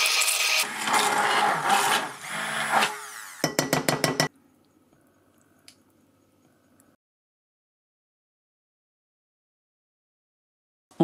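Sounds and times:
hand blender running: 0:00.0 - 0:03.5.

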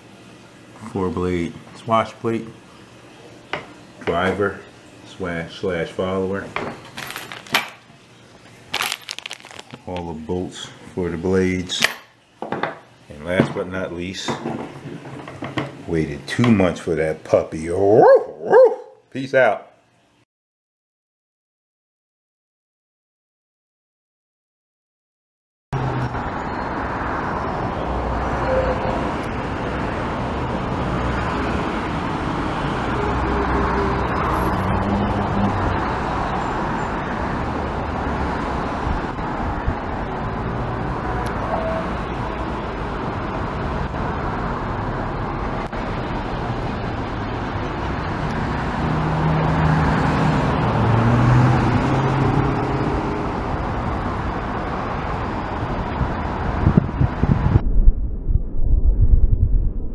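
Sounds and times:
low hum: 0:56.9 - 0:59.9.

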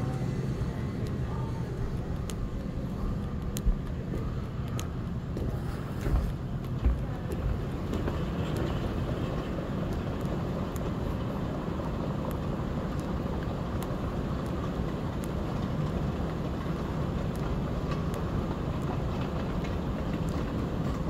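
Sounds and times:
moving walkway rumbling: 0:00.0 - 0:21.0
faint clicks: 0:01.9 - 0:05.5, 0:12.2 - 0:21.0.

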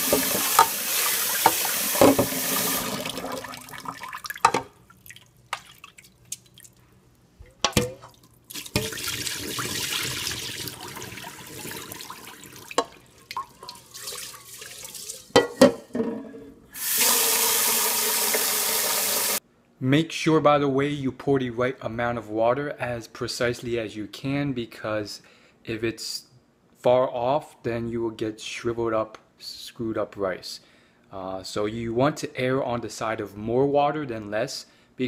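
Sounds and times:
tap running into pot: 0:00.0 - 0:00.8, 0:01.4 - 0:03.2, 0:07.5 - 0:09.1, 0:12.7 - 0:13.8
water poured into sink: 0:00.0 - 0:06.8, 0:07.8 - 0:15.4.

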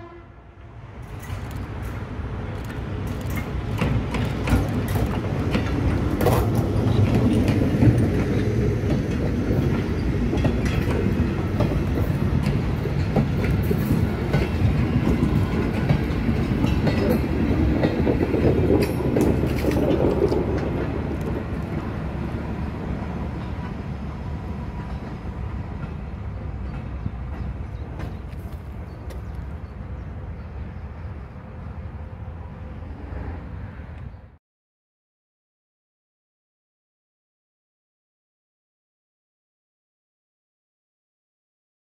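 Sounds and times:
train wheels clacking over rail joints: 0:01.0 - 0:21.9, 0:24.7 - 0:29.6.

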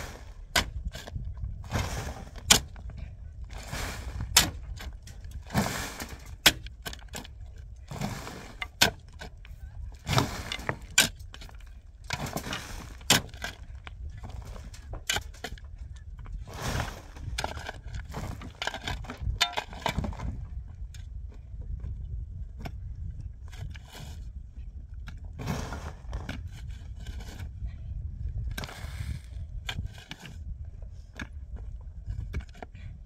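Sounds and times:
shovel scraping earth and stones: 0:00.0 - 0:20.4, 0:23.5 - 0:24.4, 0:25.2 - 0:27.6, 0:28.4 - 0:31.4
pick clinking on rock: 0:18.4 - 0:20.1.

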